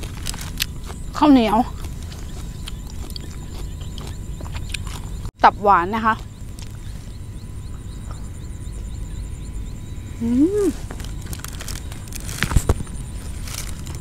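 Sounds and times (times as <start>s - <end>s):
person chewing: 0.0s - 5.2s
faint high chirping: 0.0s - 14.0s
low wind rumble: 0.0s - 14.0s
person humming mmm: 10.2s - 10.9s.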